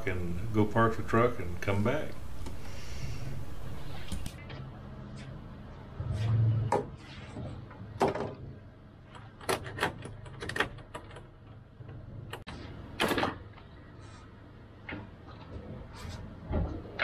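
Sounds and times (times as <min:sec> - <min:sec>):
low steady hum: 0:00.0 - 0:07.8.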